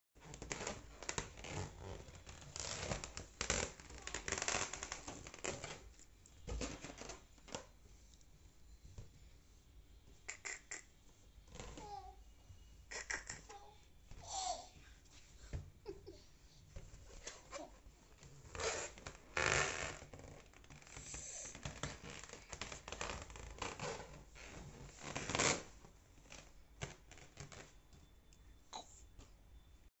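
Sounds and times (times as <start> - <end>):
hands rubbing a balloon: 0.2 - 7.8, 18.3 - 27.8.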